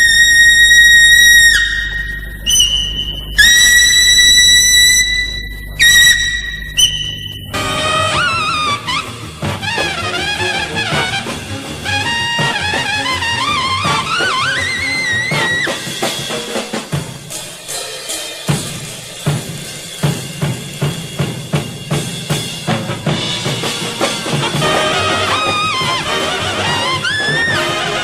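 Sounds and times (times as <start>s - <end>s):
trumpet with sliding notes: 0.0s - 16.1s, 24.3s - 28.0s
brass section: 3.3s - 16.4s, 23.6s - 28.0s
drum kit beat: 6.8s - 28.0s.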